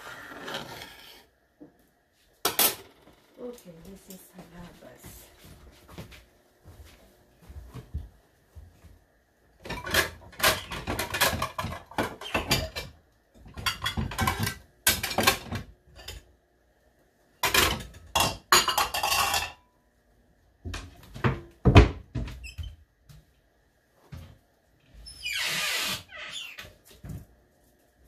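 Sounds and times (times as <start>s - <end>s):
kitchen utensils and dishes clattering: 2.4s - 3.2s, 9.6s - 16.3s, 17.4s - 19.7s.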